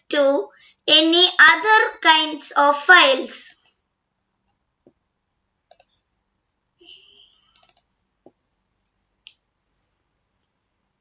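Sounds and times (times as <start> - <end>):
computer mouse clicks: 3.6 - 5.0, 5.7 - 6.1, 7.5 - 10.6.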